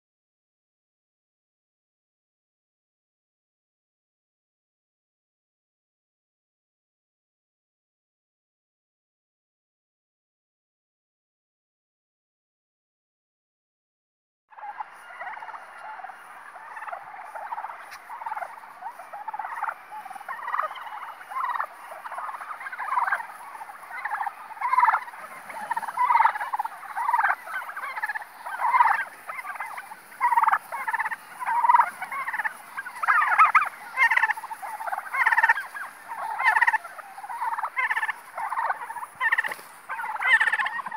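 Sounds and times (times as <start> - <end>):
turkeys gobbling: 14.5 - 40.9.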